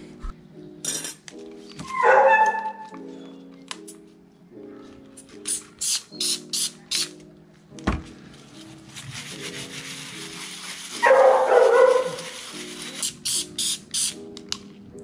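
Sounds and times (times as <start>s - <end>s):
background music with steady chords: 0.0s - 15.0s
spray bottle squirts: 12.2s - 14.2s.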